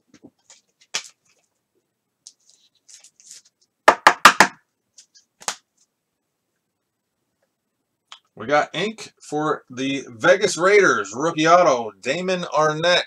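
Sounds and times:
cards knocking on a tabletop: 3.9s - 4.6s
cards tapping on a tabletop: 3.9s - 4.6s.

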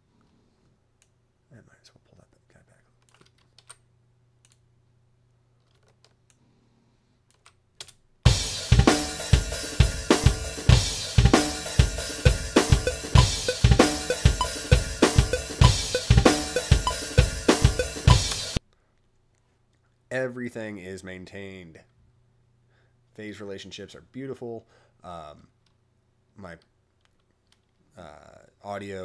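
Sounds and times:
drum kit playing steady beat: 8.3s - 18.6s.

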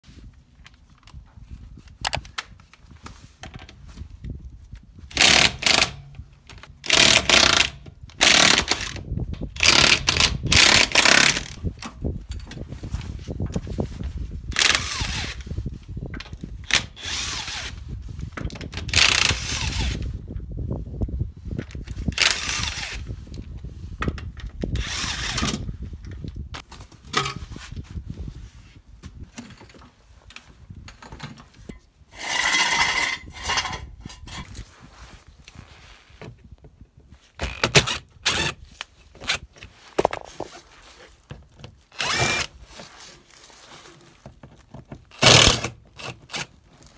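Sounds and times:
power tool bursts: 42.0s - 42.5s, 45.1s - 45.8s.

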